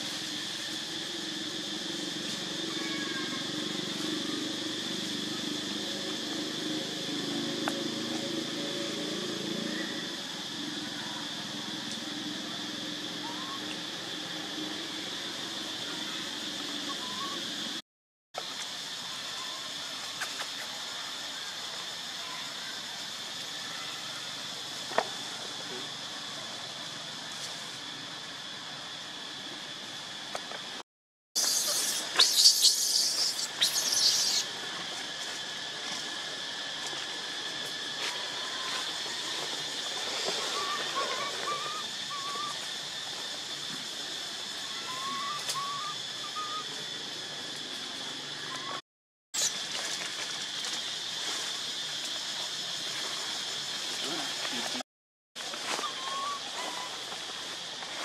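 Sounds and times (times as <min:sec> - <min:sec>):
insect chorus buzzing: 0:00.0 - 0:17.8, 0:18.4 - 0:48.8, 0:49.4 - 0:54.8, 0:55.4 - 0:58.0
short wavering whistled calls: 0:31.4 - 0:34.5, 0:40.5 - 0:42.6, 0:44.6 - 0:46.8.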